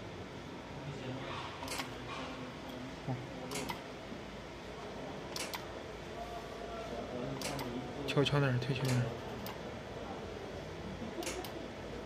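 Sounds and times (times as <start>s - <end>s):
sharp clicks: 7.4s - 7.7s.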